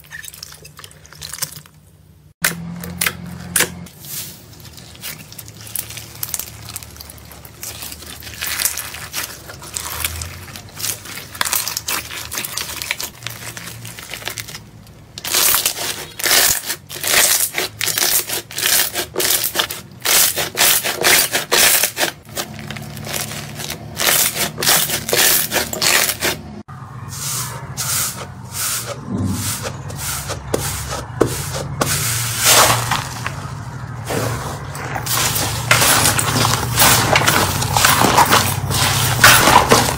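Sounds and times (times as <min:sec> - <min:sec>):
crunchy slime crackling: 0:03.9 - 0:26.4.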